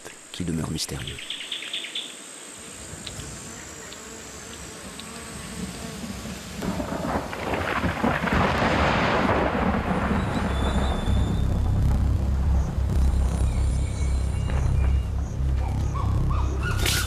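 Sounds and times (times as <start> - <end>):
heavy rain: 5.6 - 15.5
rumbling thunder: 6.0 - 16.6.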